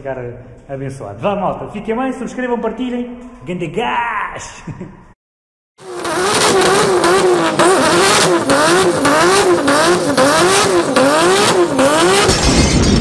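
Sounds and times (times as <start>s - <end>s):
car engine revving: 5.8s - 12.8s.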